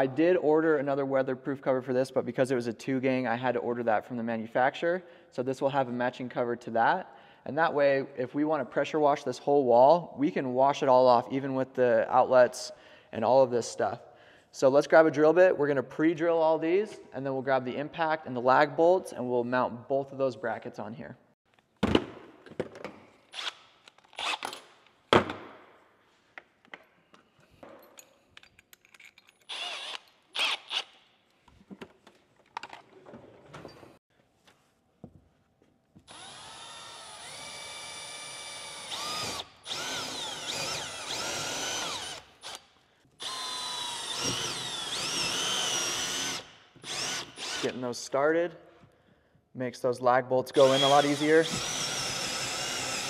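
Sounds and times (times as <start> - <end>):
drill motor whining: 29.5 - 30.9, 36.1 - 42.6, 43.2 - 47.8, 50.6 - 53.0.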